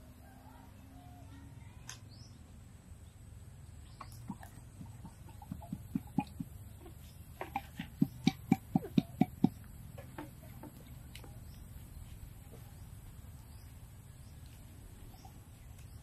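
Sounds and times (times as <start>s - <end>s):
hollow knocks on bamboo tube: 4.2s - 10.8s.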